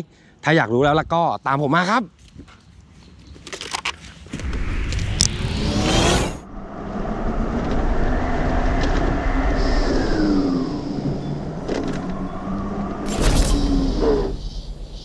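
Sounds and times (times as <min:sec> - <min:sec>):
passing vehicle wind and tyre noise: 0:04.3 - 0:15.0
short loud burst of noise: 0:13.1 - 0:15.0.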